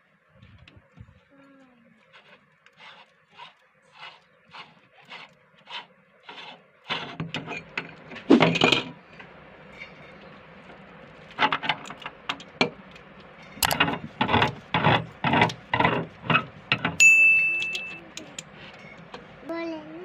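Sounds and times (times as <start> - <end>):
metal clinking and scraping: 2.1 - 19.2
sharp ringing metal clang: 17.0 - 18.0.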